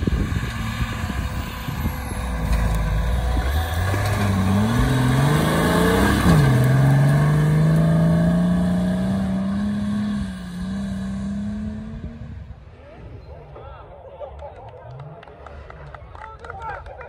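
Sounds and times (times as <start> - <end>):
engine accelerating hard: 0.0 - 12.5.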